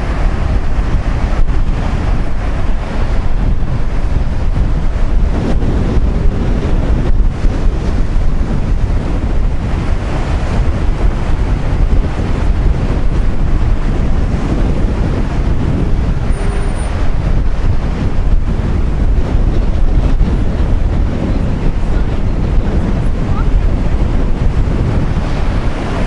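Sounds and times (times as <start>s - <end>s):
rush of surf: 0.0s - 26.0s
strong wind buffeting microphone: 0.0s - 26.0s.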